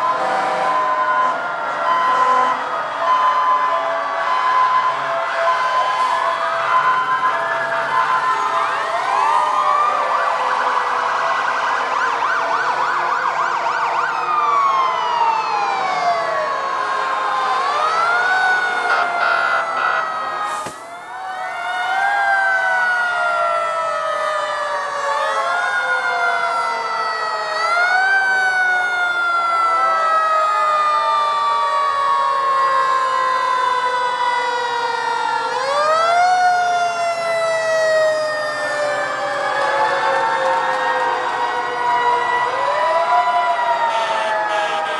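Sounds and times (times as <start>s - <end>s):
fire truck sirens wailing and yelping: 0.0s - 44.9s.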